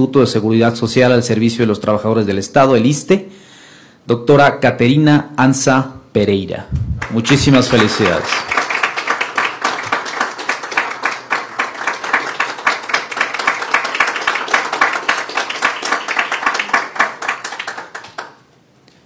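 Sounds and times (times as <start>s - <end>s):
people applauding: 7.0s - 18.5s.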